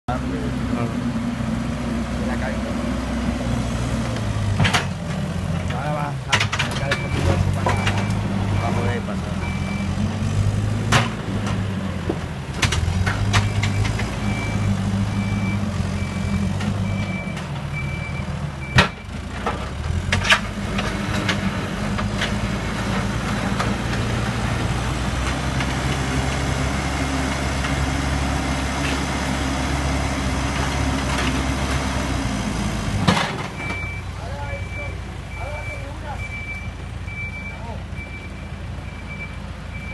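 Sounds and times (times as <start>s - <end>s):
diesel engine running: 0.1s - 39.9s
metal clanks and knocks: 4.1s - 8.2s
reversing alarm beeping: 6.8s - 10.0s, 13.4s - 19.2s, 33.6s - 39.9s.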